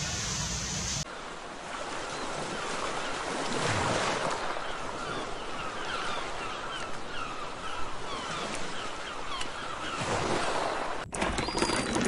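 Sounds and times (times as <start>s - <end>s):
falling bird chirps: 11.2s - 12.0s.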